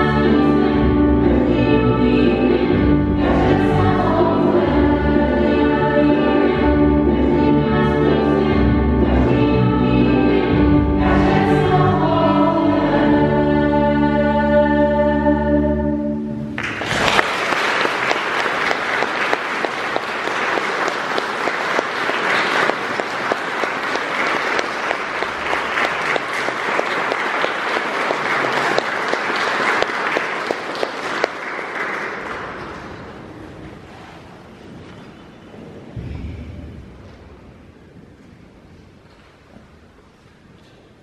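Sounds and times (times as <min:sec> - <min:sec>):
choir and strings holding chord: 0:00.0 - 0:16.6
audience applauding: 0:16.6 - 0:33.3.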